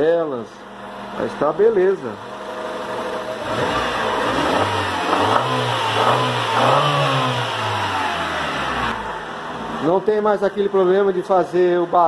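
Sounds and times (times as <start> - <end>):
car engine revving: 2.2 - 10.1.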